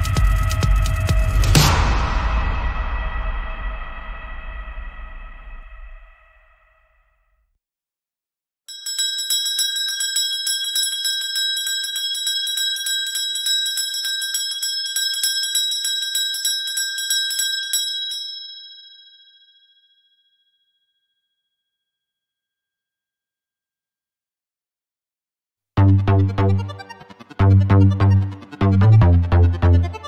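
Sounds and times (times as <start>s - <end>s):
bell ringing in a fast trill: 8.7s - 20.2s, 25.8s - 30.0s.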